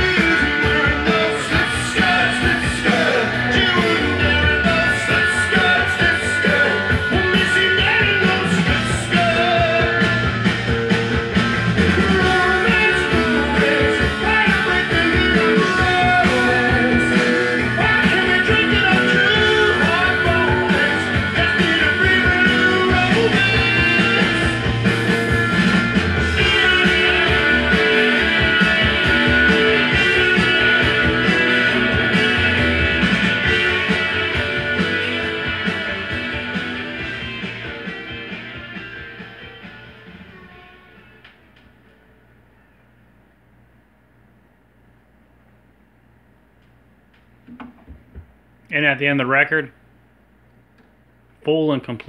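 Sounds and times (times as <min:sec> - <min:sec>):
rock music from vinyl record: 0:00.0 - 0:42.8, 0:47.2 - 0:49.0.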